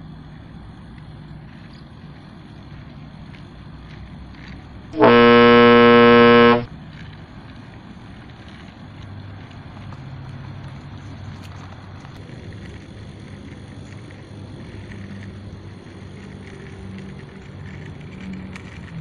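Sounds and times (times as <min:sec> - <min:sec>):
truck horn: 0:05.0 - 0:06.7.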